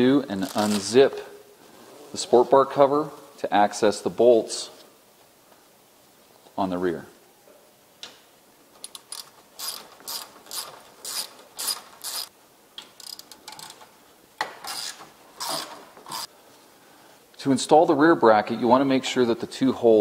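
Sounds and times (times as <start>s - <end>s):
hand ratchet clicking: 8.8s - 13.8s, 14.6s - 16.3s.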